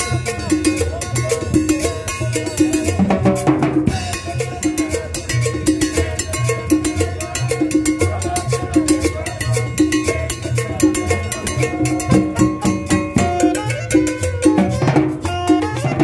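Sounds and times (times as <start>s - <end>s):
percussion clicks and drums: 0.0s - 16.0s
upright bass line: 0.0s - 16.0s
saxophone: 11.2s - 16.0s.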